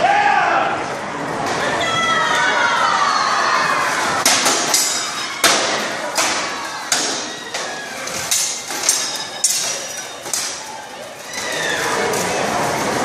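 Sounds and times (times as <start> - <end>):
swords clashing on armour: 4.2 - 10.6.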